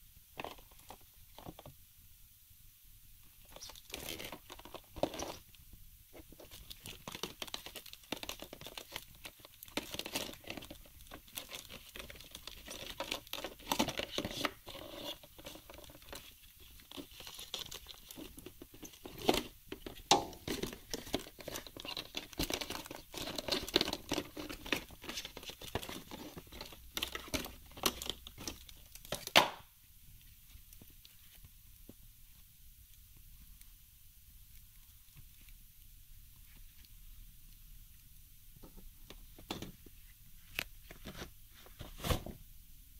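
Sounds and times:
cardboard and paper rustling: 0:03.4 - 0:29.5, 0:39.3 - 0:42.4.

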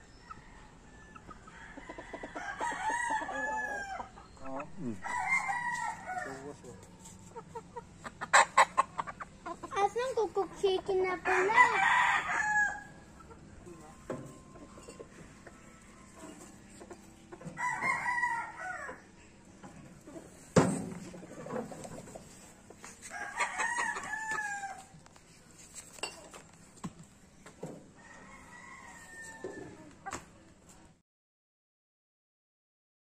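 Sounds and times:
roosters crowing: 0:00.0 - 0:09.2, 0:11.2 - 0:25.1, 0:27.8 - 0:30.1.

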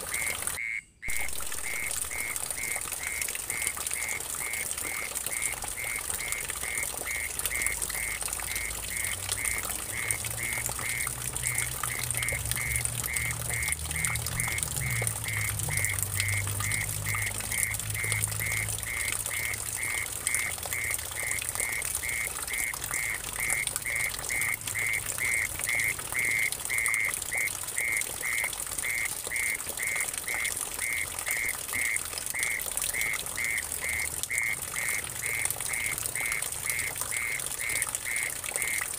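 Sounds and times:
water trickling into a pool: 0:00.0 - 0:38.9.

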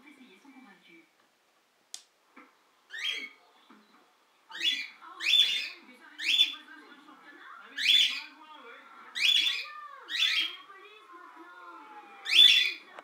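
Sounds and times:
parakeet rasping cries: 0:02.9 - 0:03.4, 0:04.5 - 0:06.6, 0:07.8 - 0:08.4, 0:09.1 - 0:10.7, 0:12.2 - 0:12.8.

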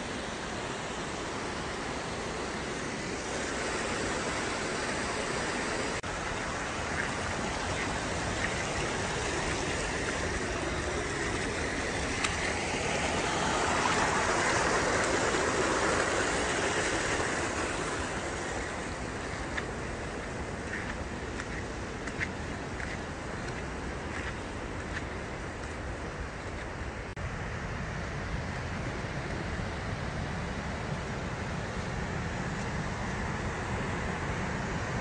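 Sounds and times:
stream rushing over rocks: 0:00.0 - 0:27.3.

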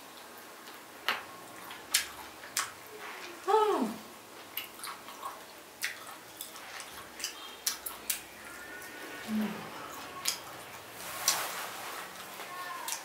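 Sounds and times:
chewing and crunching: 0:04.4 - 0:09.0.

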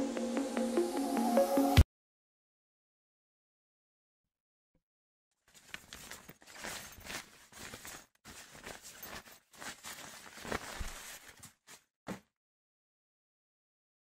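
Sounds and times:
fabric backpack rustling: 0:05.4 - 0:12.3.

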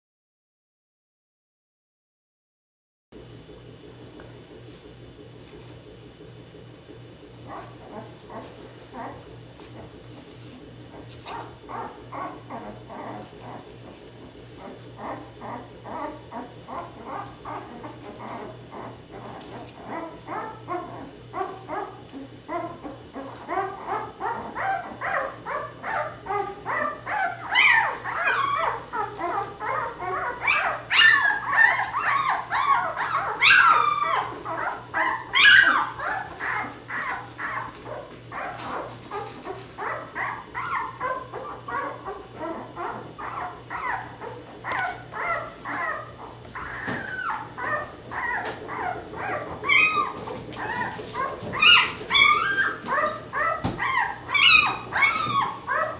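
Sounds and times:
puppies whimpering and squeaking: 0:07.4 - 0:55.9
puppy high yelps: 0:22.5 - 0:55.9.

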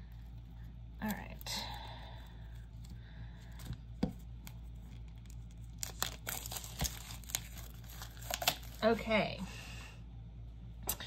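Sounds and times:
plastic wrapping crackling: 0:01.0 - 0:09.0.

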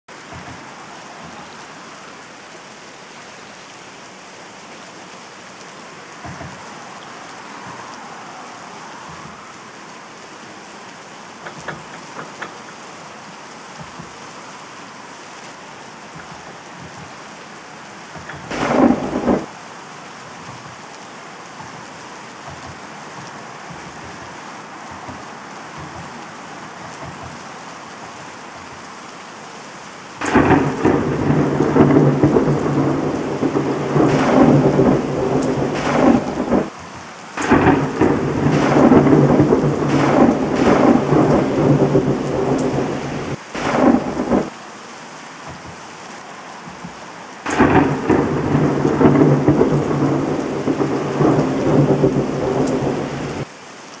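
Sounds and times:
rain hiss: 0:00.1 - 0:54.0
rolling thunder: 0:18.0 - 0:20.8, 0:30.2 - 0:44.5, 0:47.4 - 0:53.5
thunder crack: 0:18.1 - 0:19.6, 0:30.2 - 0:36.8, 0:37.4 - 0:44.5, 0:47.4 - 0:53.5.

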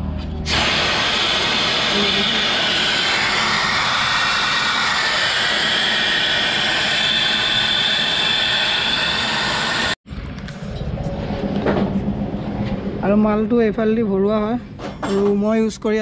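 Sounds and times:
high-pressure spray hissing: 0:00.5 - 0:10.0.

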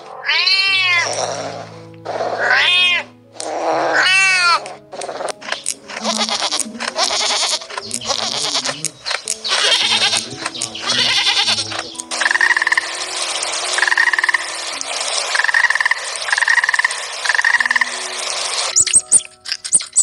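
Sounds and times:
cat meowing: 0:00.0 - 0:04.8, 0:06.0 - 0:11.9
lambs bleating: 0:00.2 - 0:12.8
background music held notes: 0:00.6 - 0:20.0.

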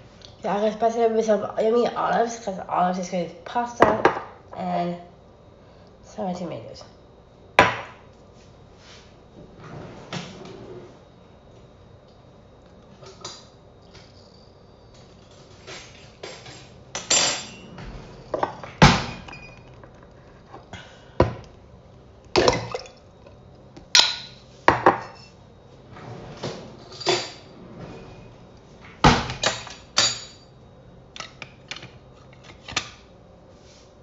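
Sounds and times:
dishes and utensils clattering: 0:15.2 - 0:18.7, 0:26.8 - 0:27.5.

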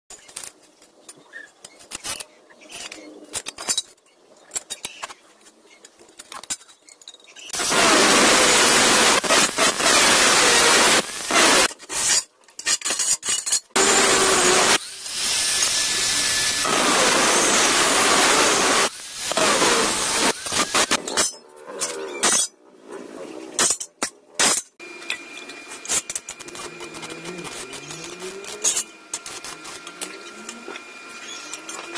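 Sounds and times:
angle grinder cutting steel: 0:07.6 - 0:21.2, 0:24.8 - 0:31.9.

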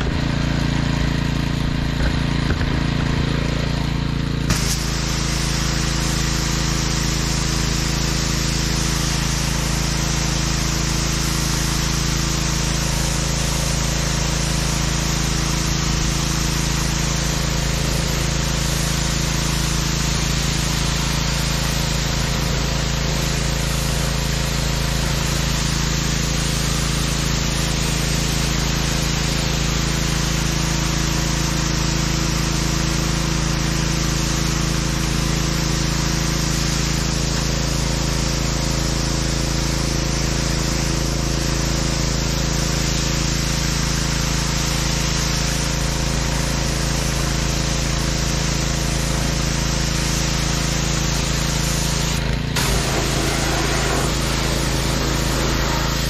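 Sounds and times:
pressure washer engine humming: 0:00.0 - 0:56.0
water spray hissing: 0:04.5 - 0:30.7, 0:49.9 - 0:56.0.

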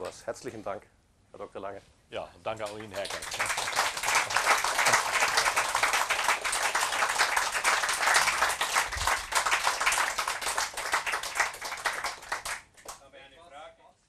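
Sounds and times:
audience applauding: 0:02.6 - 0:13.0.

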